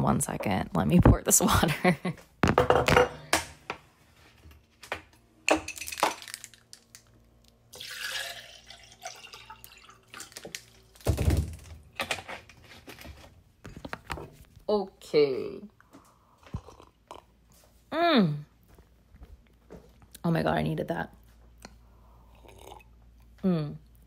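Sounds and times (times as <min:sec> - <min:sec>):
water pouring: 0:07.7 - 0:11.0.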